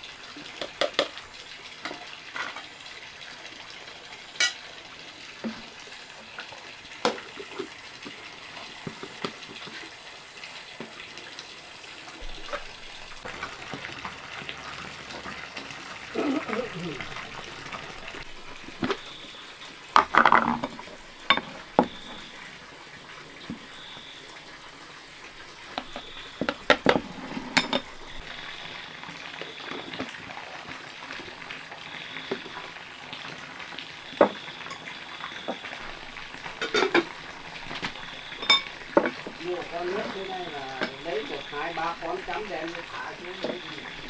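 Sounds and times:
objects knocking and clattering: 19.9 - 22.0, 36.6 - 37.1, 37.7 - 39.4.

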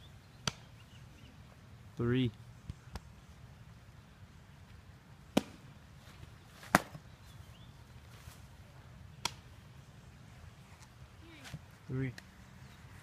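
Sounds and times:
softball smacking into glove: 6.6 - 7.0.

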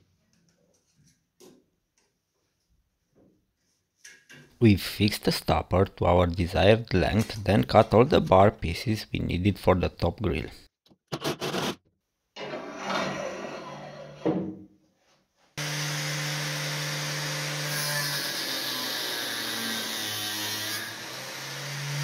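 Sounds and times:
handling and scraping noise: 7.0 - 8.6
power saw running: 15.6 - 19.8
saw blade cutting metal: 15.6 - 22.0.

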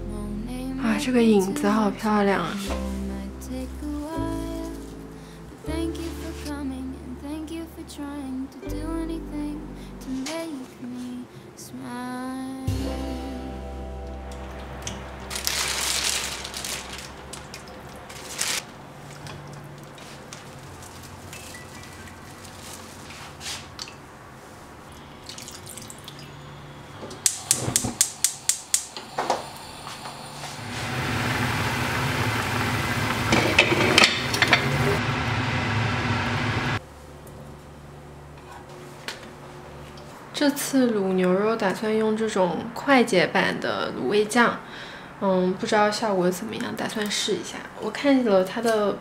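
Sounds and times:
soft background music: 0.0 - 18.6
crunching crinkling noise: 14.9 - 24.1
water boiling in a pot: 27.2 - 36.8.

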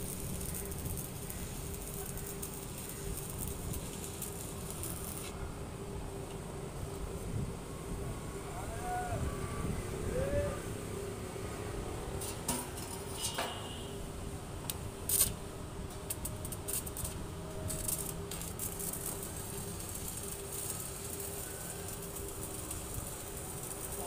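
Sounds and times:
electrode ticking on steel: 0.0 - 5.3, 14.7 - 24.0
welding arc crackling: 0.0 - 5.4, 14.6 - 24.0
steady hum: 0.0 - 24.0.

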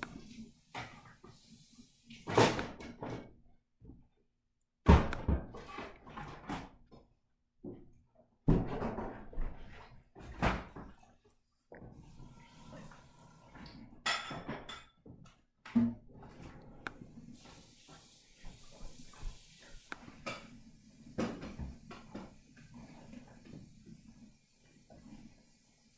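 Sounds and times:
household knocks and thumps: 4.8 - 6.8, 8.5 - 11.0.

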